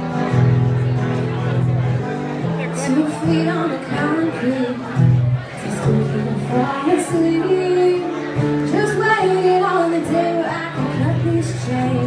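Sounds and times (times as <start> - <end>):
acoustic guitar: 0.0 - 12.0
woman singing: 2.8 - 5.0, 5.6 - 12.0.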